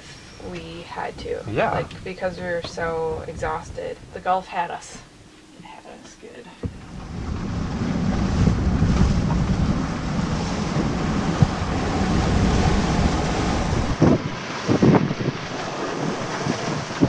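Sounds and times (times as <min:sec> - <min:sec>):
wind buffeting microphone: 0:00.0 - 0:04.4, 0:06.6 - 0:17.0
waves rushing along hull: 0:06.6 - 0:17.0.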